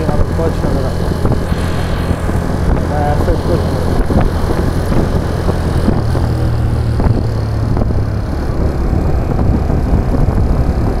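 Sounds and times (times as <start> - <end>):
motorcycle engine running: 0.0 - 11.0
wind rushing over microphone: 0.0 - 11.0.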